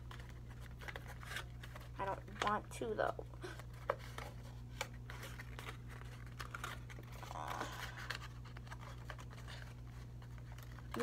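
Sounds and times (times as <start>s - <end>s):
paper folding and rustling: 0.0s - 11.0s
steady low hum: 0.0s - 11.0s.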